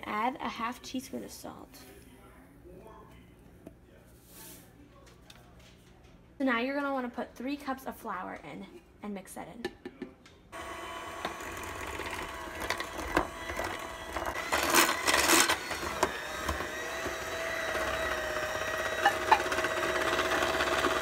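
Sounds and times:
hand mixer motor whine: 10.6s - 21.0s.

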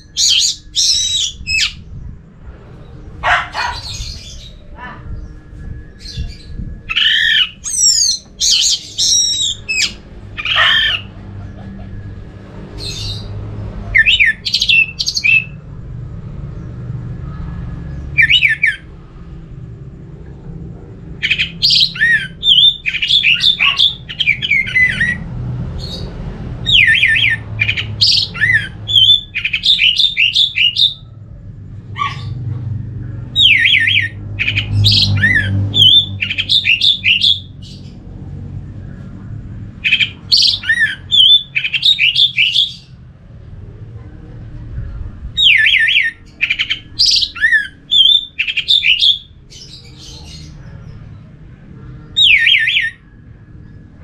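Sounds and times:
thrush singing whistled phrases: 3.6s - 11.1s, 13.9s - 15.6s, 18.1s - 18.9s, 21.2s - 25.2s, 26.7s - 31.0s, 33.3s - 37.6s, 39.8s - 43.0s, 45.4s - 49.3s, 52.2s - 53.1s.

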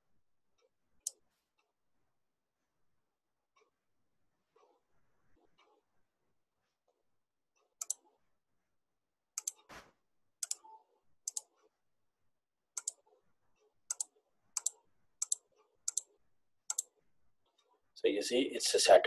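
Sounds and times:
computer mouse clicking: 7.7s - 8.2s, 9.4s - 9.7s, 10.4s - 11.6s, 12.8s - 13.2s, 13.9s - 17.0s.

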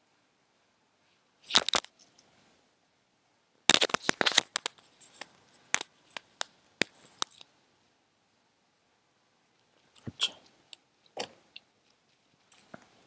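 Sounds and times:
book pages rustling: 3.7s - 7.4s.

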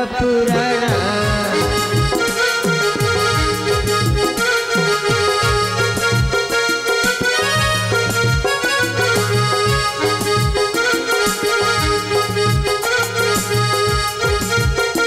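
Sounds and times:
harmonium reedy melody: 0.0s - 15.0s.

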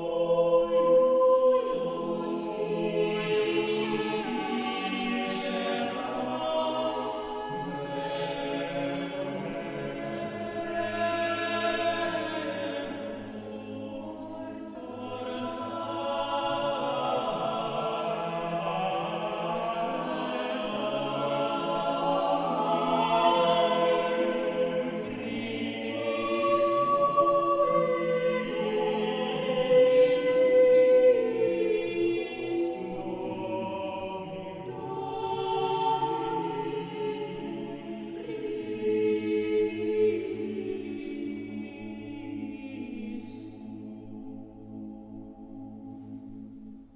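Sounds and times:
choir singing sustained chords: 0.0s - 46.9s.

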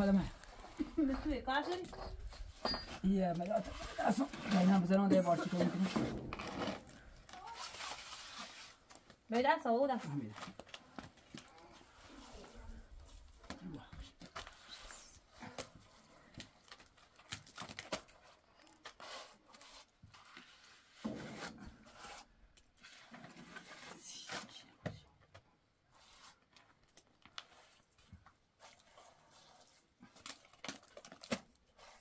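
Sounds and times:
trowel scraping mortar: 0.5s - 8.8s, 18.8s - 24.0s.

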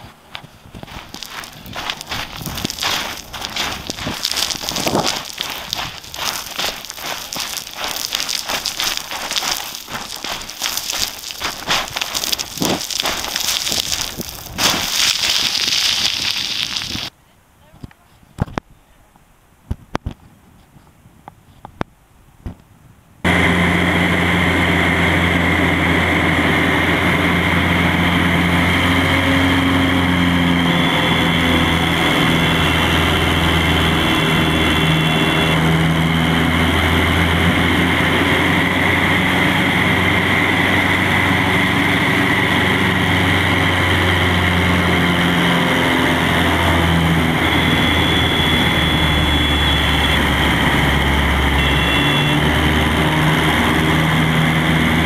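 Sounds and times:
light plane engine drone in cockpit: 23.3s - 55.0s.

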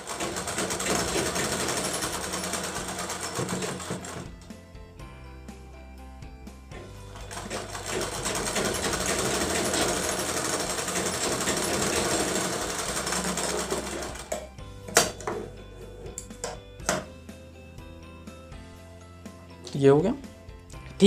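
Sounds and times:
sewing machine running: 0.0s - 4.4s, 6.8s - 15.1s.

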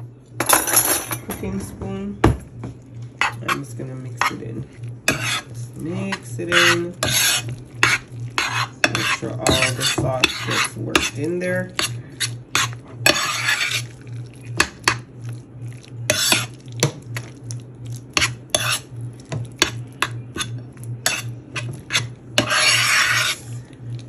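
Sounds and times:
metal spoon clinking and scraping dish: 5.1s - 13.9s, 18.2s - 18.8s, 19.6s - 23.6s.

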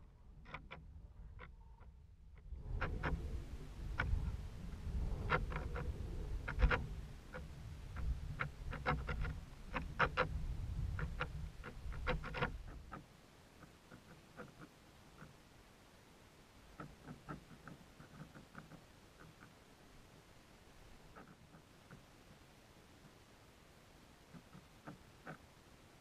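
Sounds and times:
low rumble: 1.0s - 12.7s.

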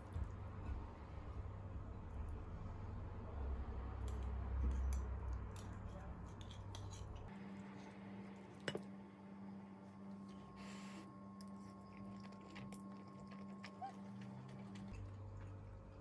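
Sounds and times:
steady low hum: 0.0s - 16.0s
cutlery scraping ceramic bowl: 6.3s - 7.2s.

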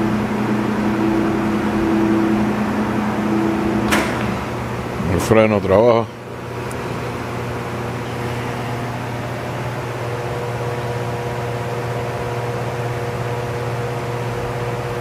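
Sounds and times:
higher lathe tones: 0.0s - 11.6s
lathe running with low hum: 0.0s - 15.0s.

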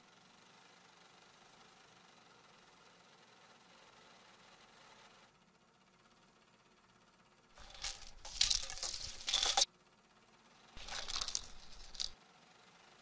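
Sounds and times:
vacuum sucking up coffee beans: 10.8s - 12.2s.

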